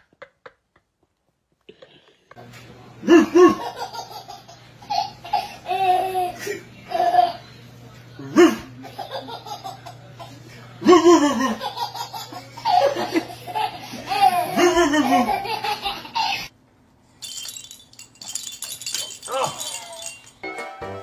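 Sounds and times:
baby laughing: 3.1s - 7.3s, 8.5s - 10.0s, 10.9s - 16.5s.

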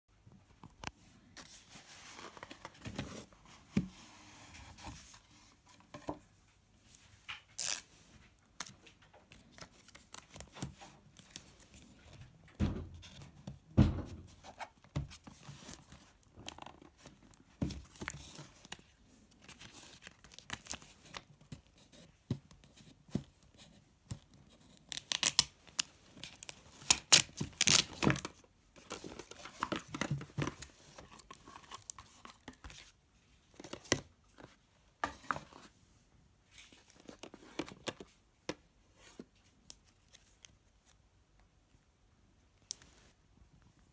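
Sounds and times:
seal tab tearing: 7.6s - 7.8s.

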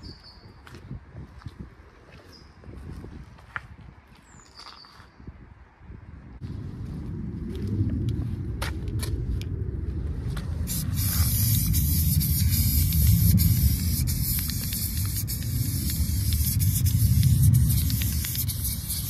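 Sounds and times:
low rumble: 6.0s - 19.0s
spray paint can hissing: 10.7s - 19.0s.

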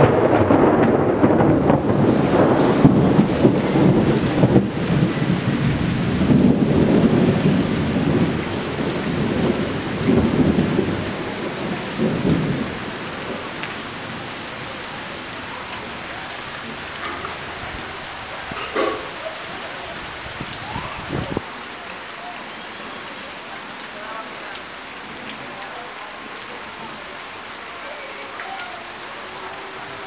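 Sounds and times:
rolling thunder: 0.0s - 19.2s, 19.9s - 21.4s
rain hissing: 0.0s - 30.0s.

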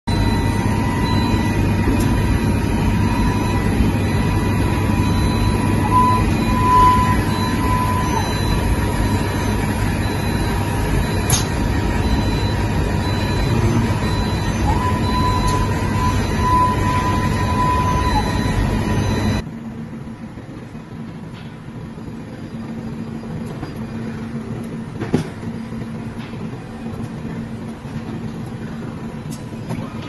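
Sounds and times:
thin steady whine: 0.0s - 30.0s
factory machinery humming: 0.1s - 30.0s.

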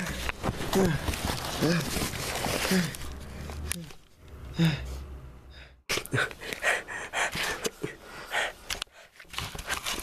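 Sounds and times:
person breathing hard: 4.5s - 9.2s.

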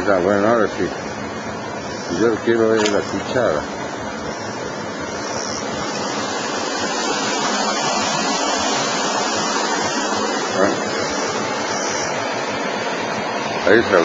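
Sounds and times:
running water rushing: 0.0s - 14.0s.

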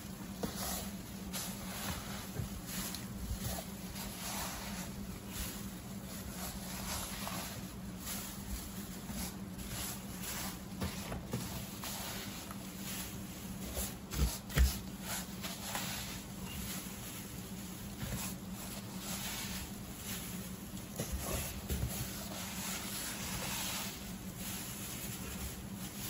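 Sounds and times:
wood shavings rustling and scraping: 0.0s - 26.0s.

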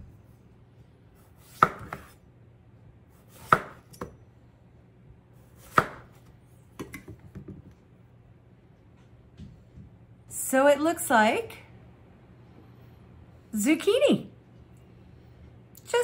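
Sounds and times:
knife striking cutting board: 1.4s - 2.2s, 5.6s - 6.1s.

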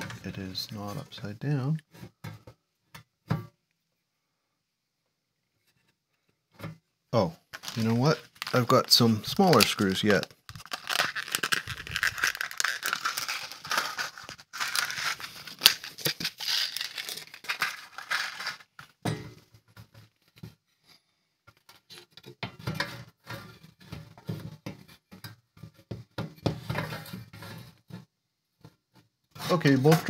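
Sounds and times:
plastic bag crinkling: 7.4s - 19.0s.

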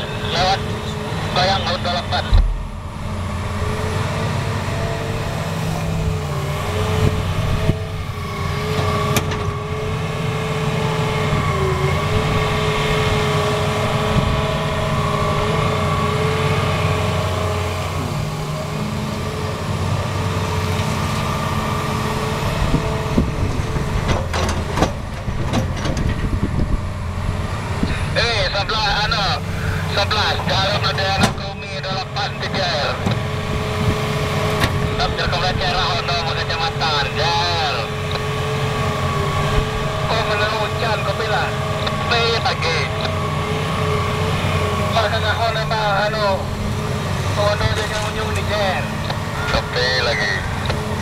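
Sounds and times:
excavator diesel engine: 0.0s - 51.0s
hydraulic whine: 0.0s - 51.0s
sharp knocks: 2.3s - 3.0s.

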